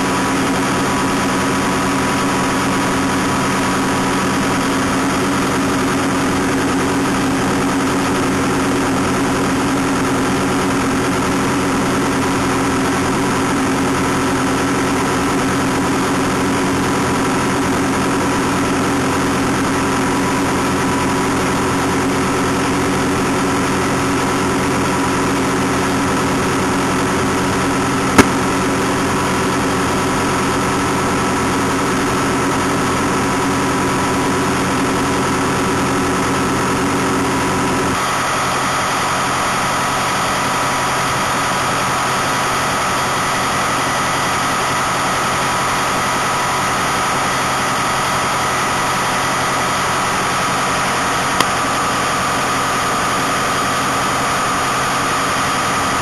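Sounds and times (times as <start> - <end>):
harvester machine drone: 0.0 - 56.0
sharp click: 28.2 - 28.4.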